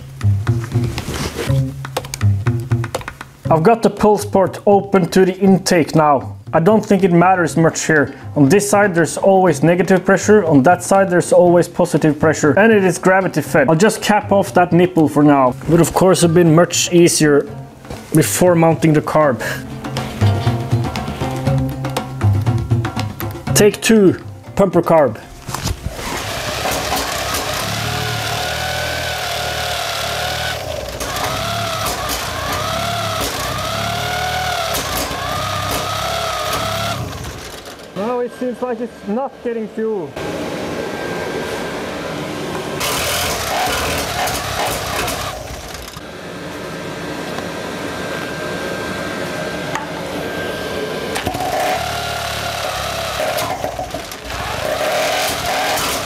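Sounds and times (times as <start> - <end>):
electric starter whining: 25.4 - 56.0
engine cranking: 25.6 - 38.5, 42.8 - 46.0, 51.2 - 56.0.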